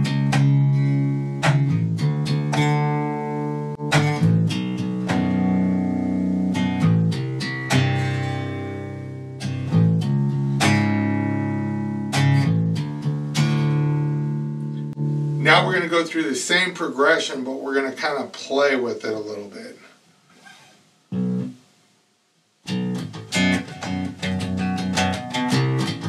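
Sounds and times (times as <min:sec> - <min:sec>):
electric bass guitar riff: 0:00.0 - 0:16.3, 0:21.1 - 0:21.6, 0:22.7 - 0:26.0.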